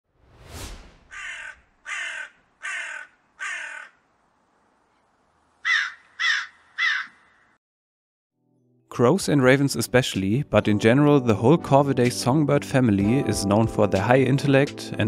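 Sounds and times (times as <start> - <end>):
short whoosh: 0.0 - 1.8
crows cawing: 1.1 - 4.1, 5.6 - 7.6.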